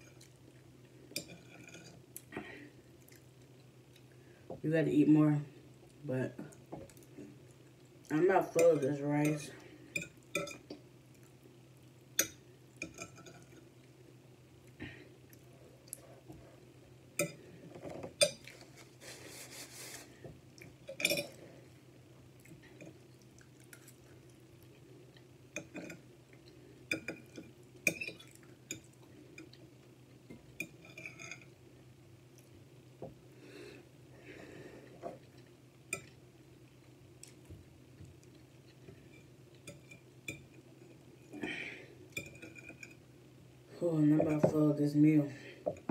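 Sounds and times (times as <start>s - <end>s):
low steady hum: 0.0s - 45.9s
quiet chewing: 2.9s - 4.2s, 22.3s - 27.5s, 34.8s - 41.0s.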